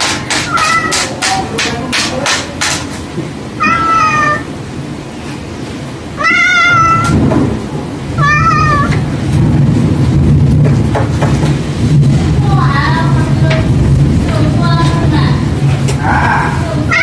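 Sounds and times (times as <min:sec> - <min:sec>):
cat meowing: 0:00.4 - 0:01.2, 0:03.6 - 0:04.6, 0:06.2 - 0:07.2, 0:08.2 - 0:09.1.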